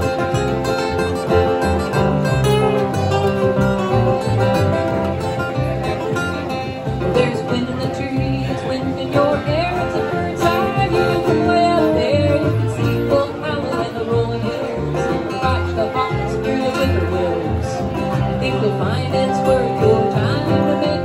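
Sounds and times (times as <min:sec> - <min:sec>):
acoustic guitars strumming: 0:00.0 - 0:21.0
upright bass plucking: 0:00.0 - 0:21.0
woman singing: 0:07.0 - 0:21.0.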